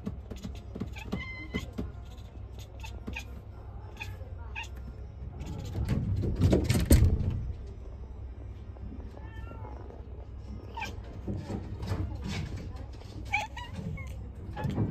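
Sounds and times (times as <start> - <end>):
kitten chattering: 0.3 - 5.8, 13.2 - 14.7.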